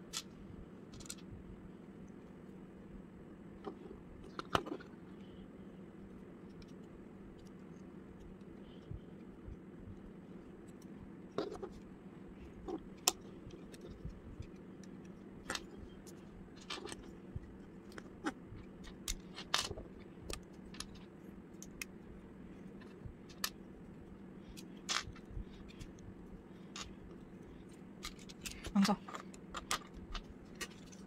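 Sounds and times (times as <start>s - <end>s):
faint steady hum: 0.0s - 31.0s
plastic bricks clicking together: 17.9s - 21.0s, 28.0s - 31.0s.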